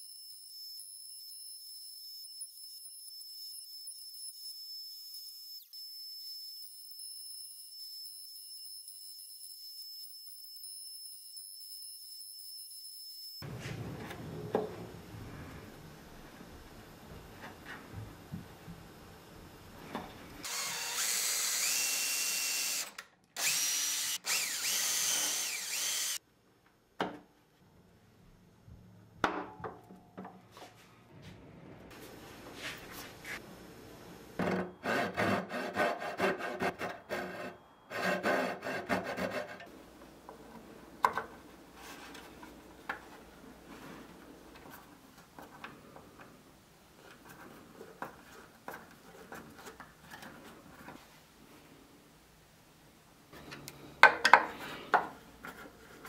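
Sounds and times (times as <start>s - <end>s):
screwdriver scraping screws: 20.4s - 26.2s
router spindle milling wood: 20.5s - 26.2s
hand saw cutting wood: 34.8s - 39.7s.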